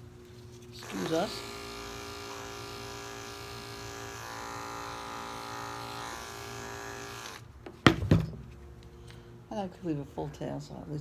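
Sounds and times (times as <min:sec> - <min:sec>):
electric clippers buzzing: 0:00.8 - 0:07.5
clippers knocking on table: 0:07.8 - 0:08.4.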